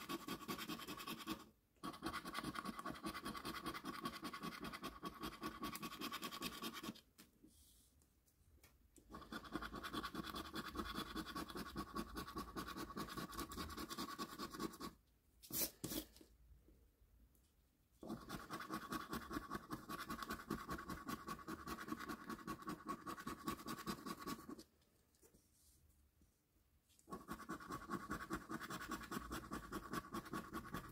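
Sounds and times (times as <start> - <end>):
coin scratching a scratchcard: 18.1 - 24.6, 27.1 - 30.9.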